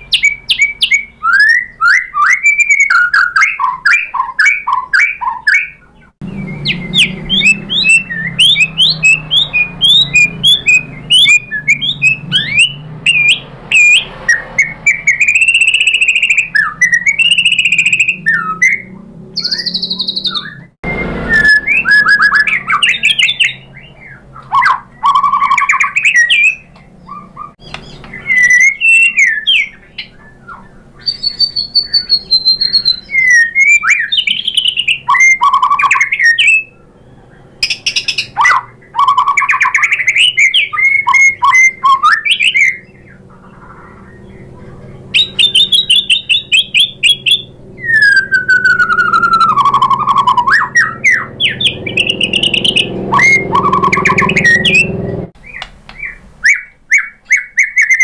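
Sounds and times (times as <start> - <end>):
songbird singing: 0.0 - 58.0
long falling whistle: 20.8 - 22.7, 47.8 - 55.0.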